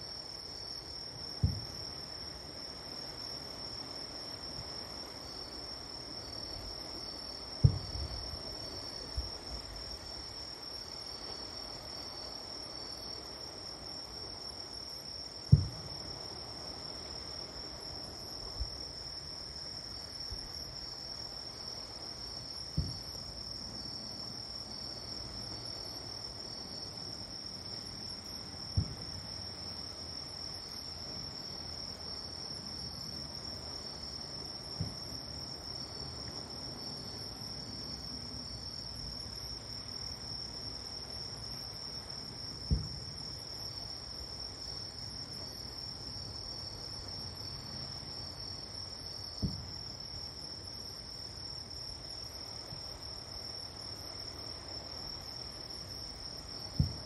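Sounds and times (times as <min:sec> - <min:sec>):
crickets chirring: 0:00.0 - 0:57.0
distant fireworks booms: 0:01.4 - 0:01.9, 0:07.6 - 0:08.4, 0:15.5 - 0:16.1, 0:22.7 - 0:23.2, 0:28.7 - 0:29.3, 0:34.7 - 0:35.1, 0:42.6 - 0:43.2, 0:49.4 - 0:49.8, 0:56.7 - 0:57.0.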